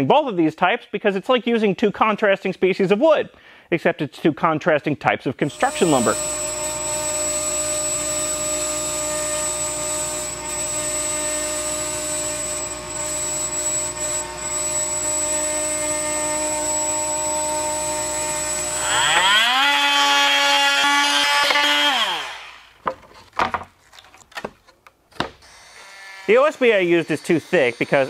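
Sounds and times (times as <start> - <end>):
cnc router humming: 5.5 - 22.6, 25.5 - 28.0
cordless power tool whining: 5.5 - 22.8, 25.3 - 28.0.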